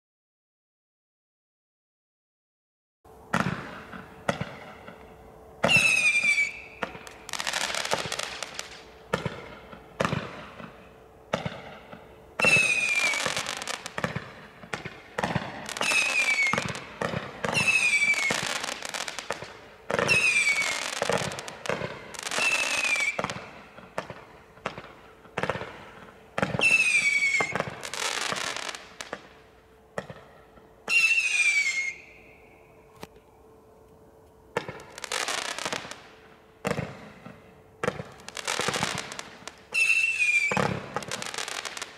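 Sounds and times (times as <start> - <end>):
firework crackling: 5.6 - 29.4, 34.6 - 41.9
whistling firework shots: 5.6 - 29.4, 30.0 - 33.0, 34.6 - 41.9.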